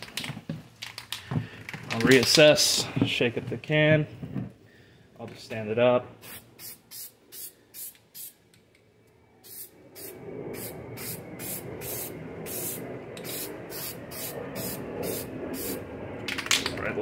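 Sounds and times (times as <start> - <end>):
spray can hissing: 6.2 - 8.4, 9.4 - 15.8
steady low noise: 9.2 - 17.0.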